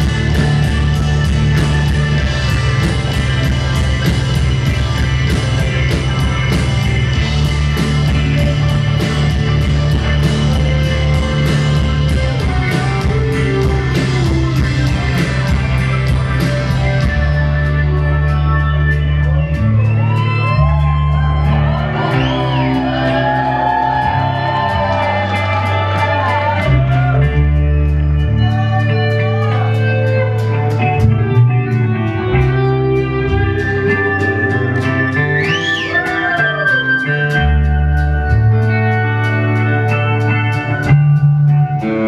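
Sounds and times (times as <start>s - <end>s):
steady drum beat: 0.0s - 18.2s, 20.0s - 27.7s
keyboards: 0.0s - 42.0s
lead electric guitar: 0.0s - 42.0s
sustained bass: 0.0s - 42.0s.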